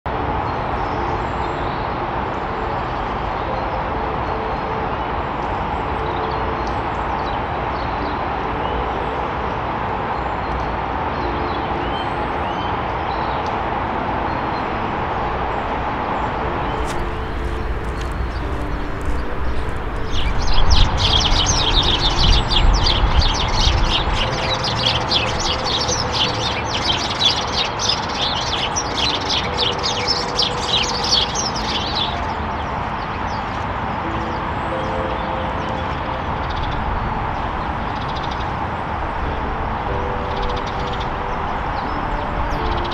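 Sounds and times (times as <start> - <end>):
sparrows chirping: 15.6 - 42.9.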